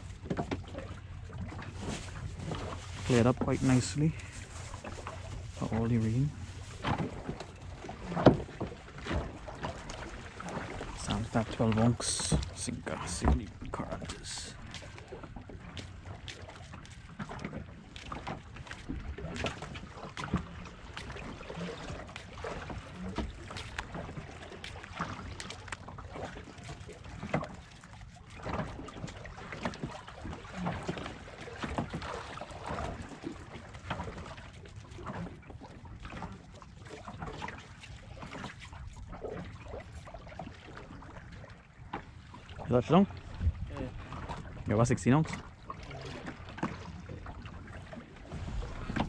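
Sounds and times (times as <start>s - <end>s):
knocks and splashes: 0.0s - 49.0s
water lapping against boat hull: 0.0s - 49.0s
wind on microphone: 43.3s - 44.0s.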